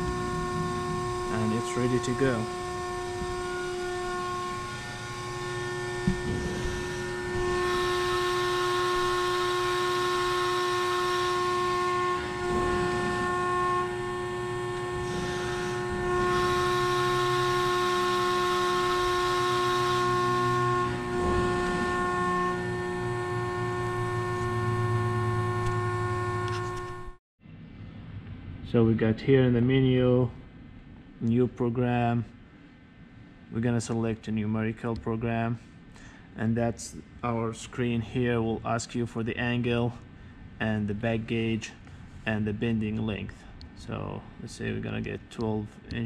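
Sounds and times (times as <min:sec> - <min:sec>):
hydraulic pump whine: 0:00.0 - 0:27.2
loud hissing: 0:11.0 - 0:24.5.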